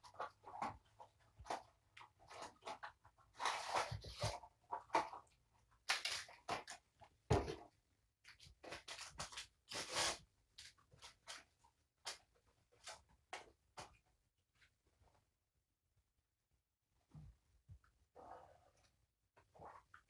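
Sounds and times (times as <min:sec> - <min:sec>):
paper packaging crinkling and tearing: 0:05.8 - 0:06.8, 0:08.6 - 0:11.4.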